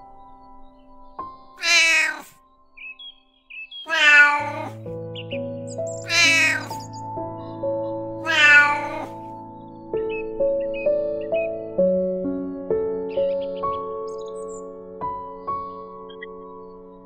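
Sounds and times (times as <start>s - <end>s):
soft background music: 0.0s - 17.0s
cat meowing: 1.6s - 2.4s, 3.9s - 4.8s, 6.0s - 6.9s, 8.2s - 9.2s.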